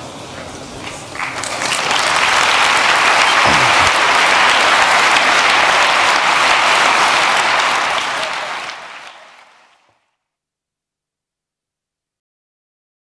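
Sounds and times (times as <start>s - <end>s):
audience applauding: 1.1s - 9.9s.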